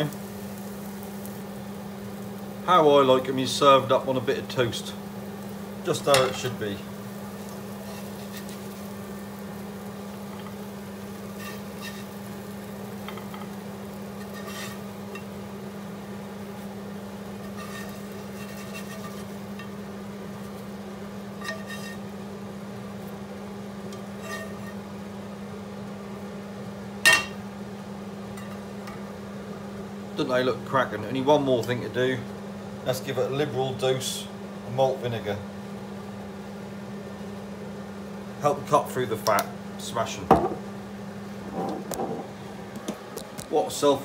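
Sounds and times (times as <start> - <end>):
extractor fan hum: 0.0 - 44.0
fish slice scraping pan: 14.2 - 14.8, 17.4 - 19.7, 21.4 - 22.0, 24.0 - 24.8
pan clanking on hob: 27.1 - 27.4.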